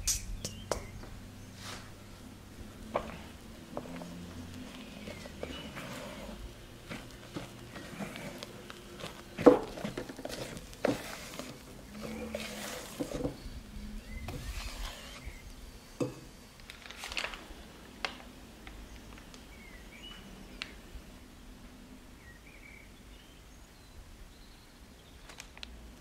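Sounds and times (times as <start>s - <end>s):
spatula scraping and squelching: 2.9s - 13.4s, 14.2s - 15.4s.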